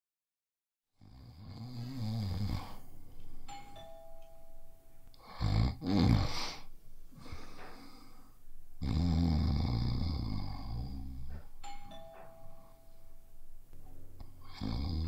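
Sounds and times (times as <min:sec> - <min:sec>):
man snoring: 0:01.0 - 0:02.9, 0:05.2 - 0:06.7, 0:08.8 - 0:11.3, 0:14.4 - 0:15.0
two-tone doorbell chime: 0:03.3 - 0:06.2, 0:11.3 - 0:14.0.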